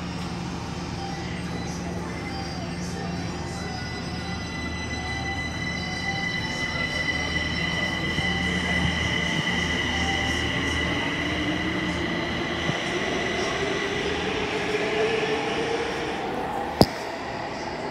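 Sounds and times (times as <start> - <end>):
electric train pulling out: 0.0 - 17.9.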